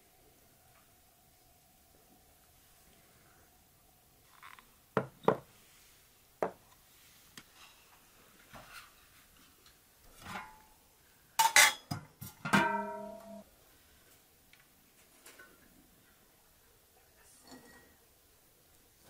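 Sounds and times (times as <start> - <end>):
dishes and utensils clinking: 11.4 - 13.4, 17.4 - 18.0
metal vessel ringing: 12.5 - 13.4
dishes scraping: 17.4 - 18.0.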